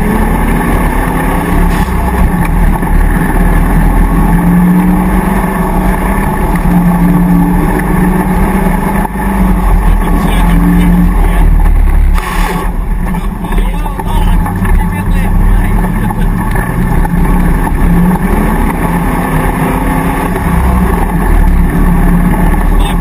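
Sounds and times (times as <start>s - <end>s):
off-road engine revving: 0.0s - 23.0s
brief rush of noise: 12.1s - 12.8s.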